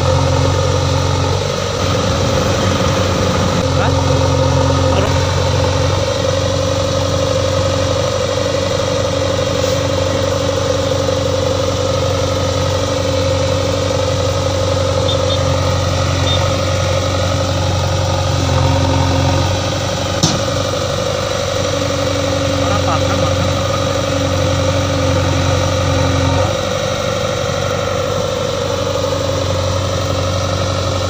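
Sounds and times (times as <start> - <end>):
diesel engine running: 0.0 - 31.0
sharp knock: 20.2 - 20.6.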